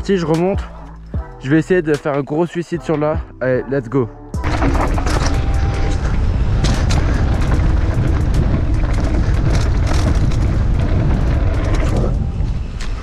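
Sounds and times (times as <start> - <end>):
bike rattling over rough ground: 4.4 - 13.0
wind rumble on microphone: 4.4 - 13.0.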